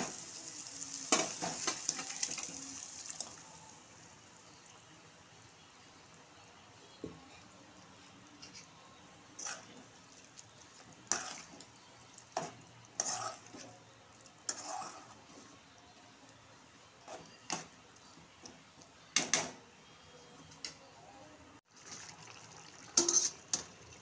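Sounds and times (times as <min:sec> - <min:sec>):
metal spoon scraping a metal pot: 0:09.4 - 0:09.8, 0:11.1 - 0:11.6, 0:13.0 - 0:13.7, 0:14.5 - 0:15.2, 0:23.0 - 0:23.6.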